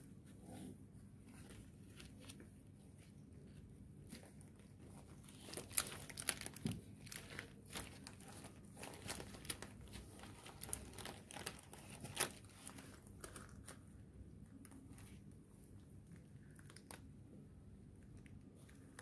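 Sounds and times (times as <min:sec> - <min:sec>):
plastic wrapping crinkling: 0:04.1 - 0:13.9, 0:16.2 - 0:17.1.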